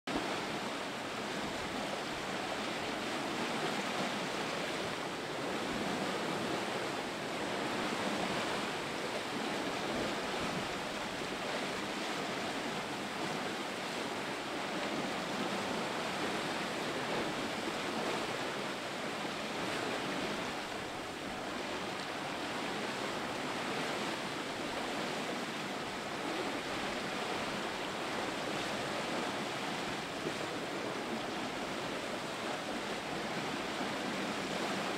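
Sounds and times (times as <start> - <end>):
wind: 0.0 - 34.9
water splashing along hull: 0.1 - 34.9.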